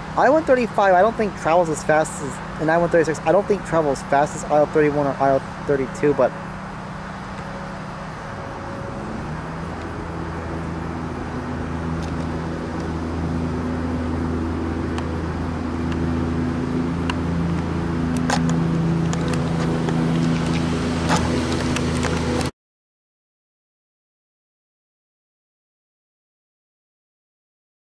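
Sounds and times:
engine drone: 0:00.0 - 0:22.5.

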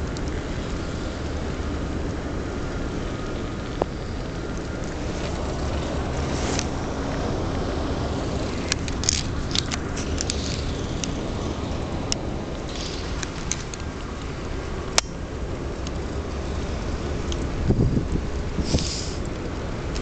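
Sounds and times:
low engine rumble: 0:00.0 - 0:20.0
sharp clicks: 0:08.5 - 0:11.2, 0:12.1 - 0:15.2.

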